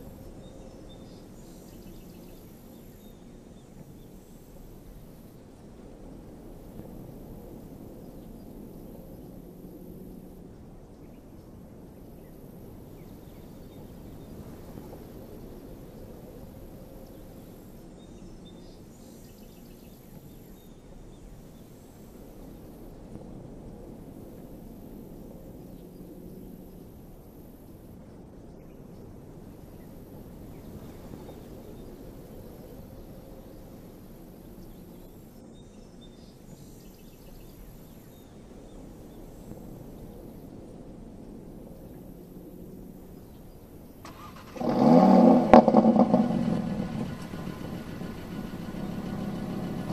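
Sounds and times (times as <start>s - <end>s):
insects chirping: 44.0s - 49.9s
low rumble: 44.7s - 49.9s.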